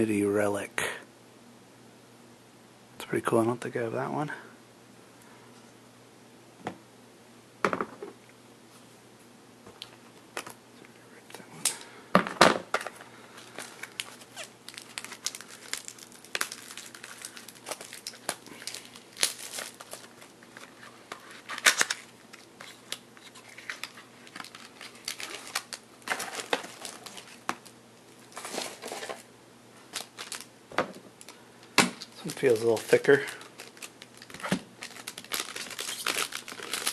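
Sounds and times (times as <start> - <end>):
foil wrapper crinkling and tearing: 12.8 - 29.3, 29.9 - 30.5, 32.0 - 36.9.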